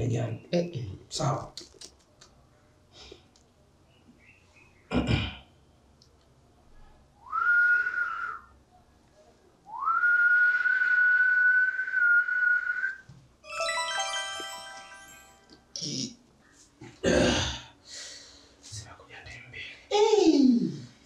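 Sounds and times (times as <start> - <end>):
man whistling: 7.2 - 8.5, 9.7 - 13.0
bright music tones: 13.4 - 16.0.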